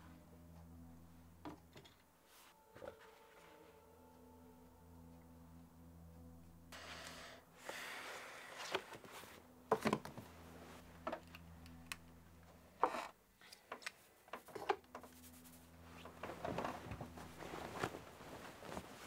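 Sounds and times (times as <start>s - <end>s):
low steady hum: 0.0s - 19.0s
faint rustling: 15.1s - 19.0s.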